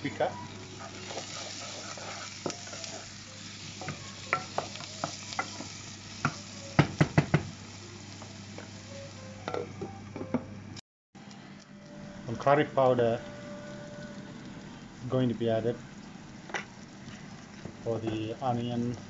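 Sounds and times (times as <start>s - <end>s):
masala sizzling in oil: 0.0s - 9.8s, 11.2s - 19.0s
knocks on pan: 6.8s - 7.5s.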